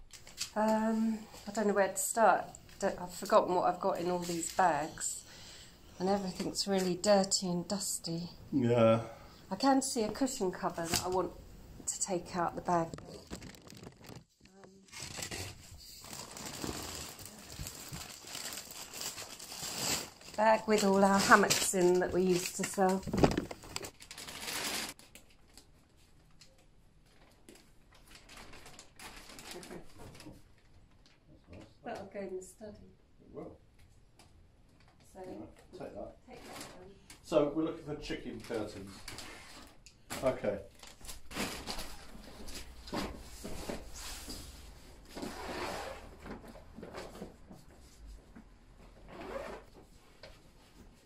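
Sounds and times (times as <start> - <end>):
bags rustling and crinkling: 12.5 - 25.2, 27.2 - 30.3, 40.7 - 47.2
zipper unzipping: 49.1 - 49.7.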